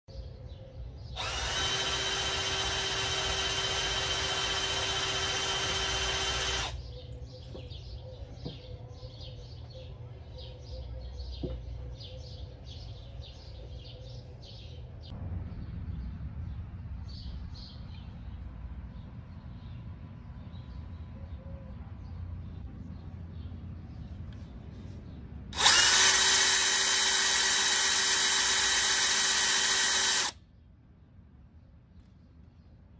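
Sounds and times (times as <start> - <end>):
birds chirping: 0.1 - 15.7, 16.4 - 31.1
cordless drill running: 1.2 - 6.8, 25.6 - 30.4.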